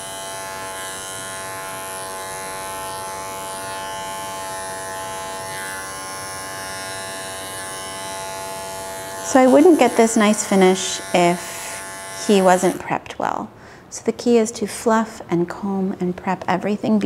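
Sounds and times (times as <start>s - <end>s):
electric clippers humming: 0.0s - 13.0s.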